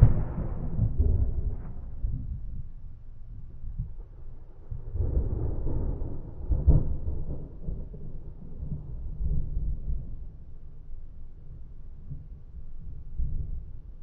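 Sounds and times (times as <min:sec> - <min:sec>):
thunder crack: 0:00.0 - 0:02.8, 0:03.7 - 0:10.3
rolling thunder rumbling: 0:00.0 - 0:14.0.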